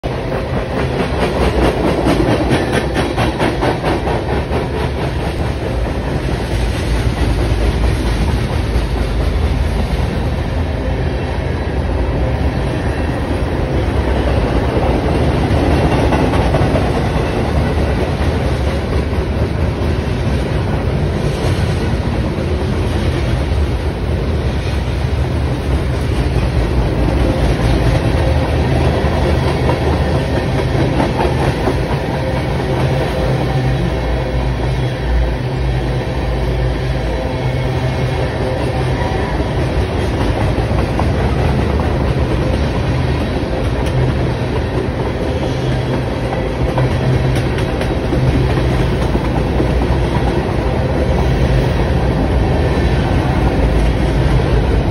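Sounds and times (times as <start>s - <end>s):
train wheels rumbling on rail: 0.0s - 54.9s
wheels clacking over rail joints: 0.1s - 10.6s, 38.4s - 54.9s.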